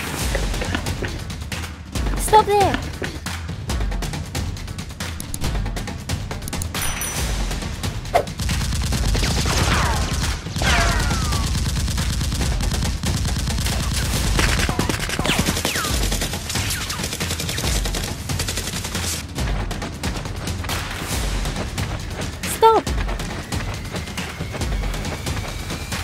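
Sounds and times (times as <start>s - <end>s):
rapid automatic gunfire: 8.3s - 19.2s.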